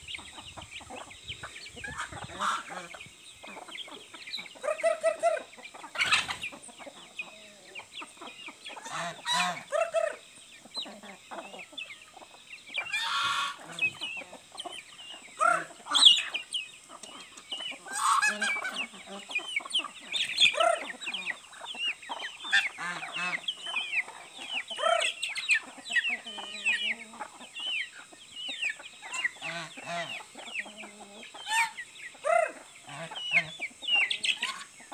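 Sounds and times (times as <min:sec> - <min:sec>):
chickens clucking: 0:00.0 - 0:34.9
harsh chicken call: 0:01.9 - 0:03.0, 0:08.8 - 0:10.2, 0:12.8 - 0:14.0, 0:17.8 - 0:19.0, 0:29.1 - 0:33.6.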